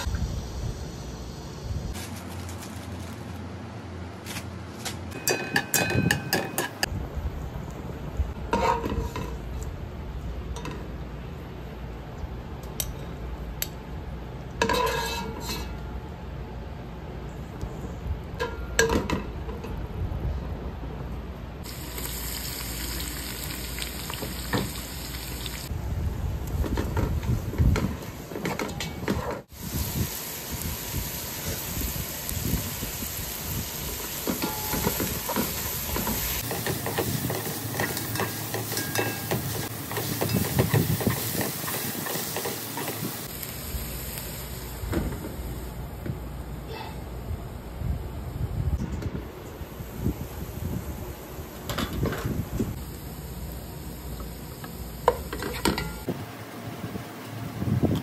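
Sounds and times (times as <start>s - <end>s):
onions sizzling in a pot: 0.0s - 2.8s, 21.6s - 26.7s, 29.4s - 45.8s, 52.3s - 56.1s
nuts sizzling in hot oil: 21.6s - 25.7s, 29.4s - 45.6s
wire strainer clinking on metal: 38.2s - 39.4s.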